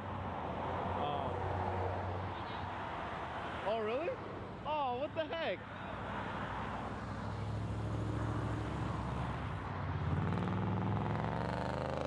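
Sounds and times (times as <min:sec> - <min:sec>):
vehicle engine revving: 0:09.9 - 0:12.0.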